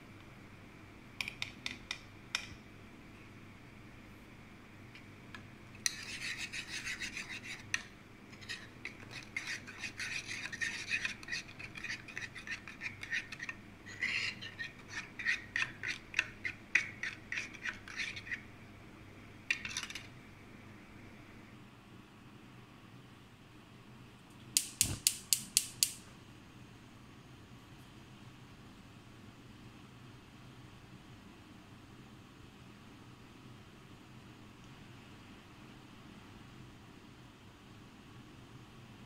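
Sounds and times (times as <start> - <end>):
teaspoon stirring in metal pot: 5.8 - 18.5, 19.5 - 20.1.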